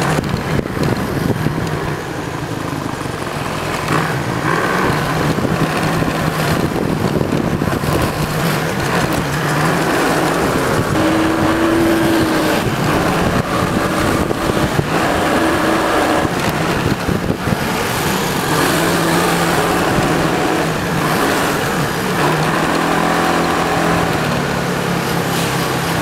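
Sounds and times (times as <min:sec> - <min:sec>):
motorcycle engine: 0:00.0 - 0:26.0
wind and road noise: 0:00.0 - 0:26.0.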